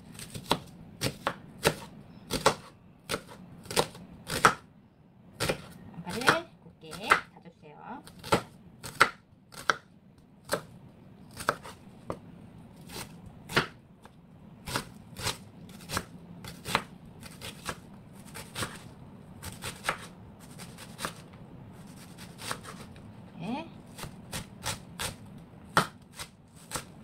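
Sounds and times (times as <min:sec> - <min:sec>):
knife chopping on wooden board: 0:00.1 - 0:04.6, 0:05.4 - 0:06.3, 0:08.0 - 0:09.8, 0:11.3 - 0:12.2, 0:12.9 - 0:13.8, 0:14.6 - 0:18.8, 0:19.4 - 0:21.2, 0:21.9 - 0:22.9, 0:23.9 - 0:26.9.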